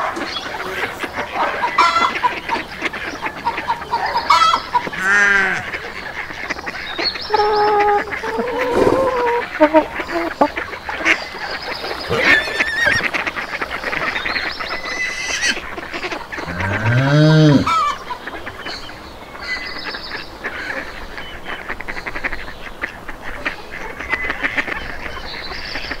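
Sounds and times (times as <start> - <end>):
ducks quacking: 0.0 - 26.0
geese honking: 0.0 - 26.0
deep animal call: 0.2 - 6.0, 7.2 - 10.6, 11.8 - 14.0, 16.4 - 18.0.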